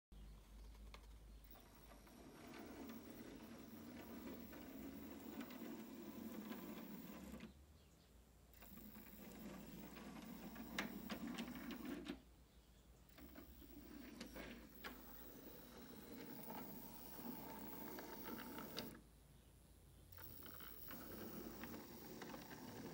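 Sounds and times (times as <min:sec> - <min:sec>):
model train motor whirring: 0:01.4 - 0:07.5, 0:08.6 - 0:12.1, 0:13.1 - 0:19.0, 0:20.2 - 0:22.9.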